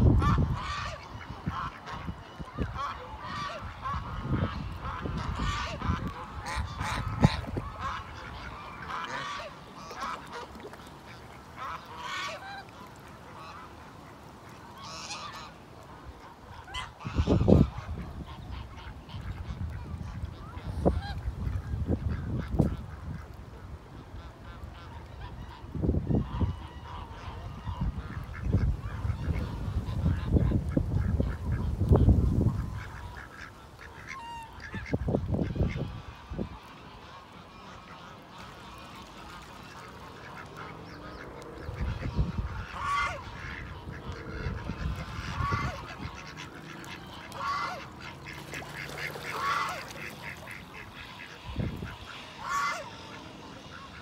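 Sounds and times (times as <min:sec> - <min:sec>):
wind rumble on microphone: 0:00.0 - 0:09.4, 0:16.2 - 0:37.6, 0:39.7 - 0:47.8, 0:48.8 - 0:52.8
geese honking: 0:00.2 - 0:23.3, 0:24.0 - 0:31.7, 0:32.5 - 0:54.0.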